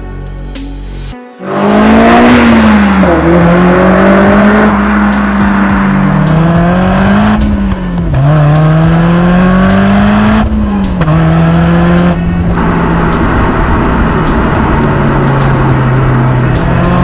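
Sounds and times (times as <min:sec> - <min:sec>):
car engine revving: 0:01.4 - 0:17.0.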